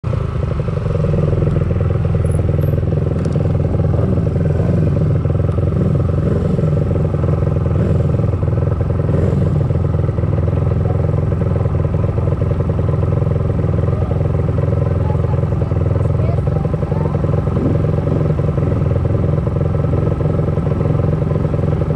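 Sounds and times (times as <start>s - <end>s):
motorbike engine running: 0.0s - 21.9s.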